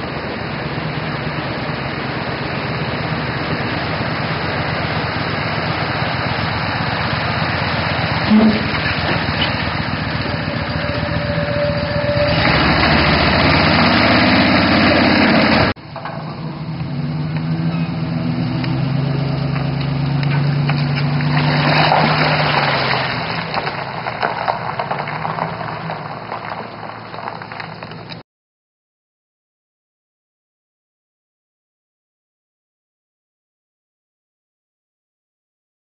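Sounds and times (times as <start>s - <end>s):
outboard motor running: 0.0s - 15.8s
pickup truck engine running: 0.0s - 28.2s.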